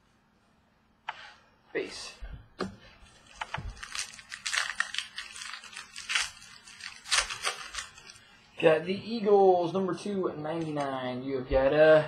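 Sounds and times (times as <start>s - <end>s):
trading cards shuffling: 3.0s - 8.2s
wrappers crinkling: 3.0s - 8.5s.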